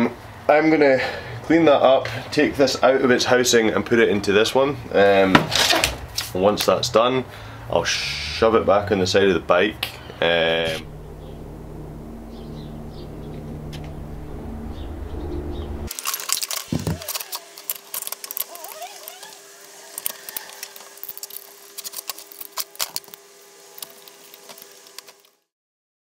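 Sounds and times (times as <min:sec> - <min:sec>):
steady low hum: 0:06.4 - 0:25.3
metal clicks and rattles: 0:15.9 - 0:19.2, 0:19.9 - 0:23.2
ratchet turning: 0:15.9 - 0:23.2.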